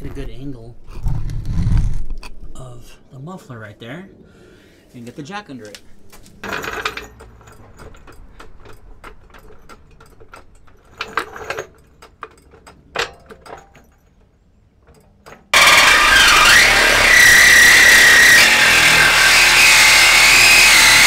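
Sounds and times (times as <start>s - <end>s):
reciprocating saw cutting metal pipe: 15.6s - 21.0s.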